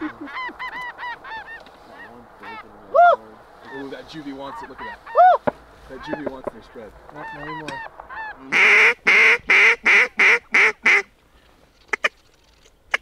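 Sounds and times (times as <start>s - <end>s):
goose call clucks: 0.0s - 2.7s, 3.6s - 11.1s
goose call honks: 7.2s - 11.1s.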